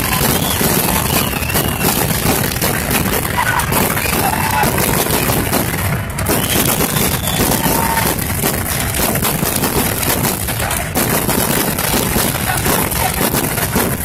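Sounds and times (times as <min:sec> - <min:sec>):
fireworks crackling and banging: 0:00.0 - 0:14.0.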